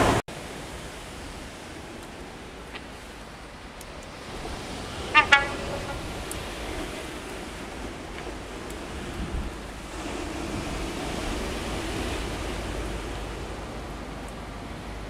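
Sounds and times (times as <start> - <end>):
steady rushing background: 0.0 - 15.0
train horn blasts: 4.6 - 7.6.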